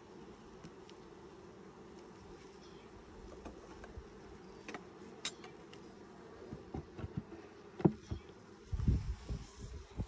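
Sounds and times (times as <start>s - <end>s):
honey bees buzzing: 0.0s - 10.0s.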